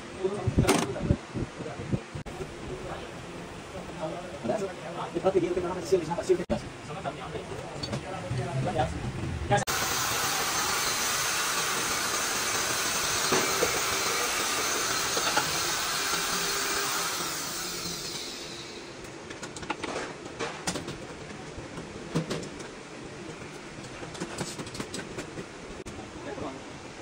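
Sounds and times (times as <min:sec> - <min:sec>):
loud rushing hiss: 0:09.6 - 0:19.1.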